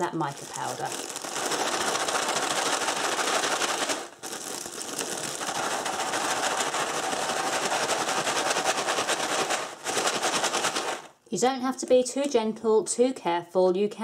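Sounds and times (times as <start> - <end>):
plastic bag crinkling: 0.0 - 11.2
sprinkles rattling inside bag: 0.0 - 11.2.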